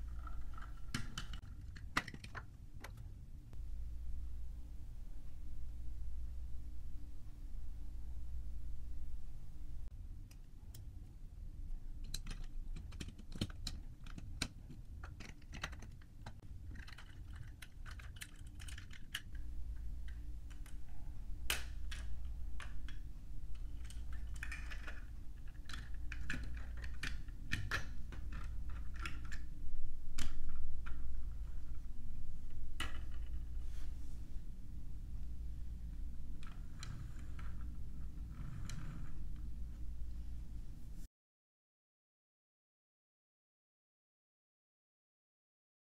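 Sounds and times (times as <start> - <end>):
plastic bricks clicking and clattering: 0.1 - 3.0, 12.0 - 19.4, 23.6 - 29.5.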